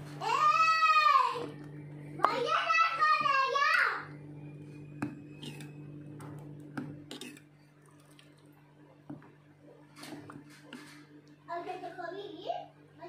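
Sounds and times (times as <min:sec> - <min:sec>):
steady low hum: 0:00.0 - 0:13.0
ladle scraping a steel pot: 0:05.3 - 0:05.8, 0:07.0 - 0:07.5.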